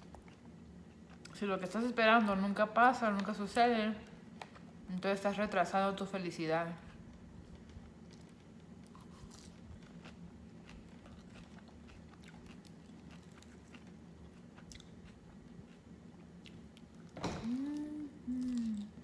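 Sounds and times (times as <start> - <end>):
faint low hum: 0.0 - 19.0
chewing leafy greens: 6.9 - 19.0.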